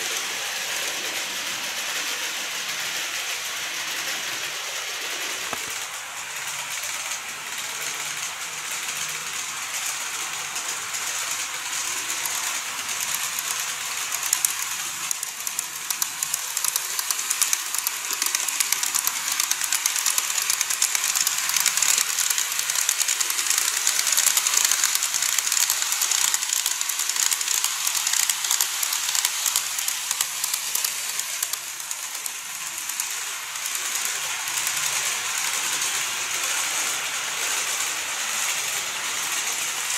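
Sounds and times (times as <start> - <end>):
model train wheels clicking on rails: 0.0 - 39.9.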